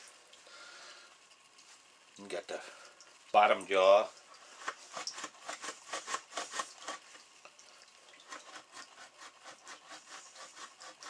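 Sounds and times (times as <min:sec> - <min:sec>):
hide rubbing over wooden beam: 0:04.5 - 0:07.2, 0:08.2 - 0:11.0.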